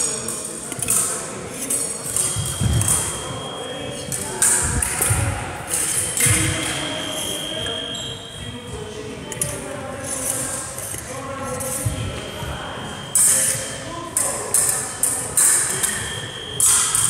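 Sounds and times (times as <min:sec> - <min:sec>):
fencing blades clashing: 0:00.0 - 0:07.8, 0:09.3 - 0:12.0, 0:13.1 - 0:17.0
steady high beep: 0:02.1 - 0:05.1, 0:05.9 - 0:08.3, 0:11.8 - 0:13.9, 0:15.7 - 0:17.0.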